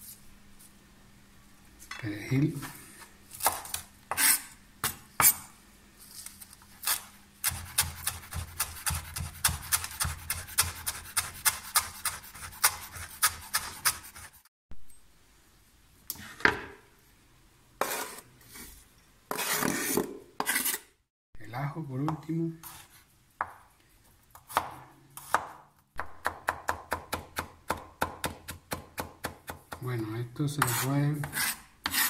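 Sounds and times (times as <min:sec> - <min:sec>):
knife scraping across board: 0:03.4 - 0:05.5, 0:06.8 - 0:14.5, 0:17.8 - 0:21.0, 0:30.6 - 0:32.0
knife chopping on wooden board: 0:07.4 - 0:14.3, 0:24.4 - 0:29.8.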